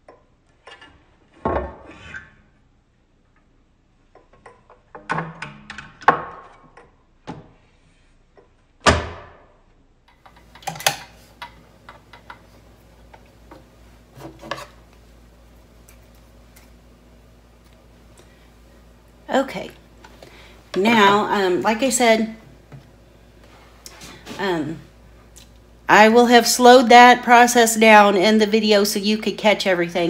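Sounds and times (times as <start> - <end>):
faint steady hum: 9.4 - 30.0.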